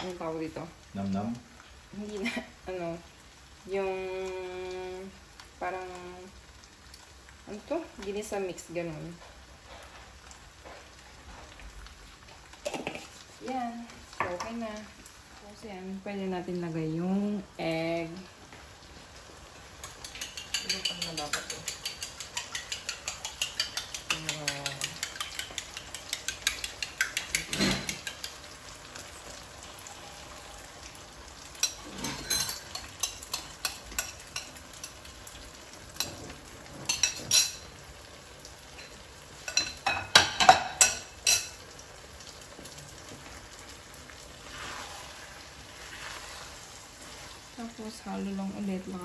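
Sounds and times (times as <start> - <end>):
frying sizzle: 0.0 - 49.0
spatula scraping frying pan: 19.8 - 28.8, 31.6 - 35.0, 44.4 - 47.5.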